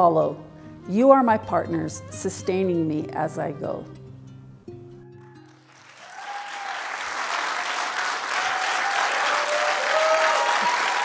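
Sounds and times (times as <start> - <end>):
plucked-string music: 0.0 - 5.8
congregation applauding: 5.2 - 11.0.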